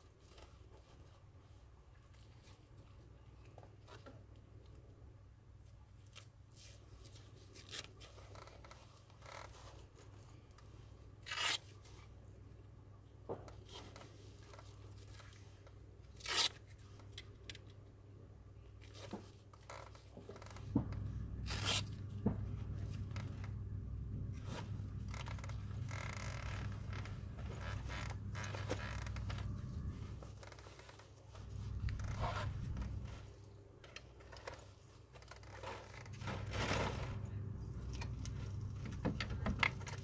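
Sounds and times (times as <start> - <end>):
velcro straps ripping: 7.5 - 8.5, 11.2 - 11.8, 16.1 - 16.7, 21.4 - 22.0, 24.4 - 31.0, 31.6 - 33.2
steady low hum: 12.0 - 40.0
straps rustling and buckles clicking: 18.8 - 23.6, 24.3 - 40.0.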